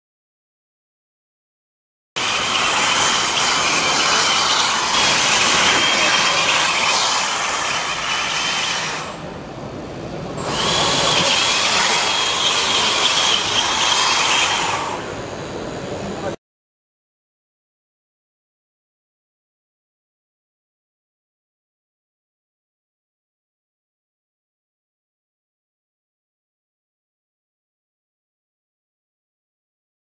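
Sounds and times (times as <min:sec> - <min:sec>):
robot motors whining: 0:02.2 - 0:09.2, 0:10.3 - 0:16.4.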